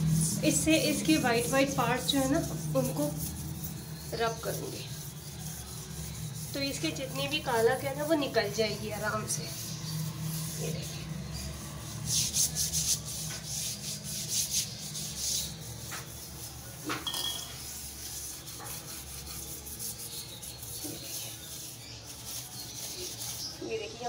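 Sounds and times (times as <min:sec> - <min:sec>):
dish scrubber rubbing ceramic tiles: 0:00.0 - 0:23.7.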